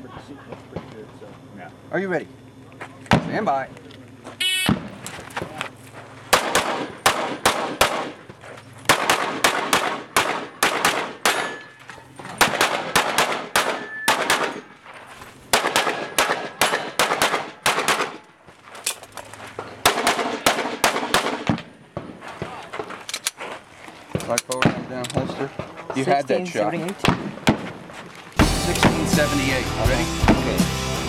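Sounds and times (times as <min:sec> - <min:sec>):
rapid handgun fire: 0:06.3 - 0:08.3, 0:08.9 - 0:11.7, 0:12.4 - 0:14.8, 0:15.5 - 0:18.3, 0:19.8 - 0:22.2.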